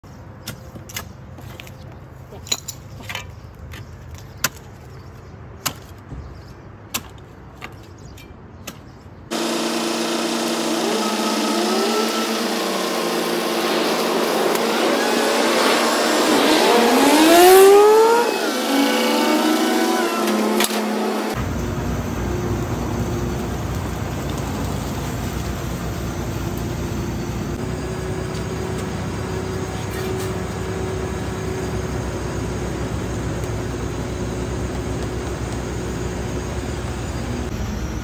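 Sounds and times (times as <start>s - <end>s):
shovels striking dry soil: 0.4s - 9.0s
crane engine and hydraulics revving: 9.3s - 38.0s.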